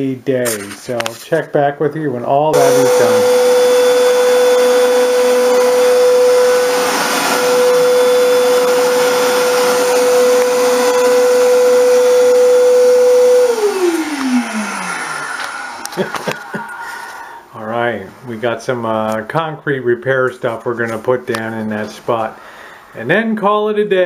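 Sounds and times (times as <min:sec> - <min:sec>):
vacuum cleaner running: 0:02.5 - 0:17.4.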